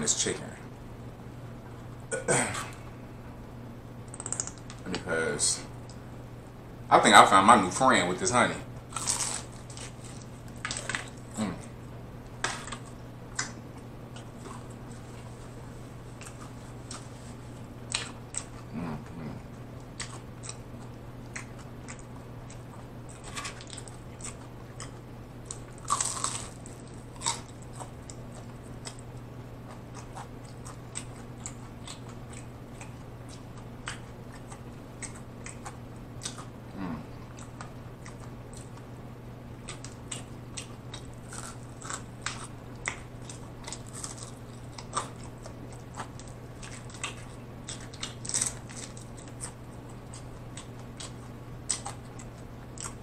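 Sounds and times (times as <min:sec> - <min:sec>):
crunchy chewing and biting: 0:08.9 - 0:53.0.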